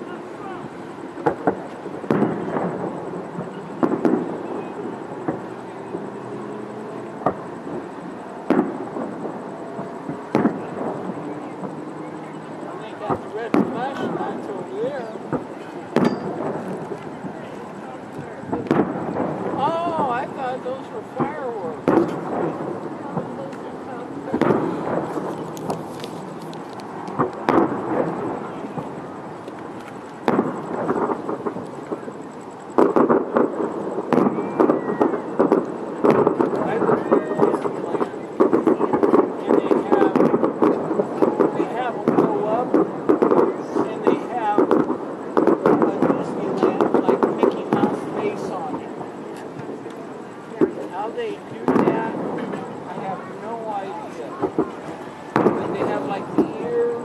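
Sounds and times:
fireworks booming: 0:00.0 - 0:57.0.

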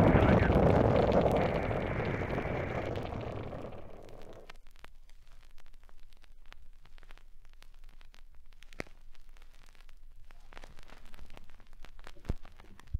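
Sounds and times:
faint hiss: 0:00.0 - 0:12.9
record clicks and pops: 0:00.0 - 0:12.9.

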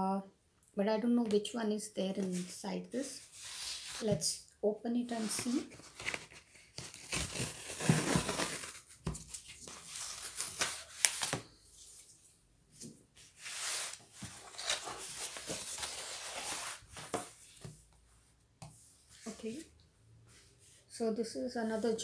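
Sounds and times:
cardboard tearing and scraping: 0:05.1 - 0:11.4, 0:13.4 - 0:17.3
book sliding out of sleeve: 0:13.4 - 0:17.2.

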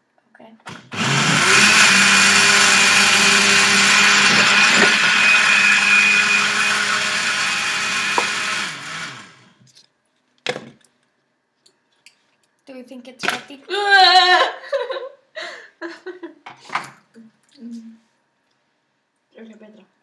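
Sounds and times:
blender whining: 0:00.7 - 0:09.6.

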